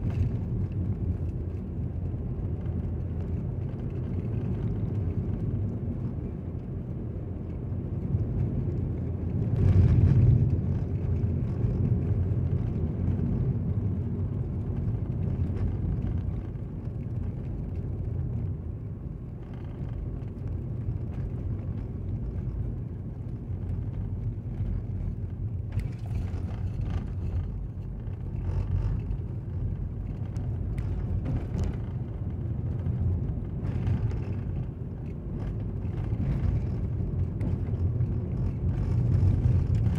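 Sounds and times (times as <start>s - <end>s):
car road noise rumble: 0.0s - 39.9s.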